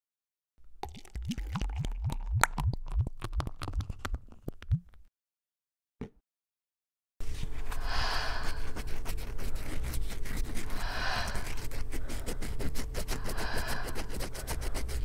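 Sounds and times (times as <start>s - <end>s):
person breathing deeply: 7.7s - 8.9s, 10.7s - 15.0s.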